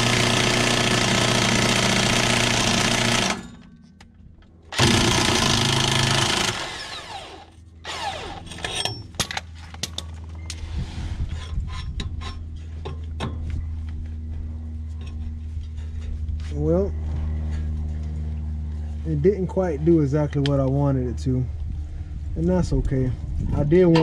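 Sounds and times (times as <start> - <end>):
power tool hammering: 0.0 - 3.6, 4.7 - 9.3.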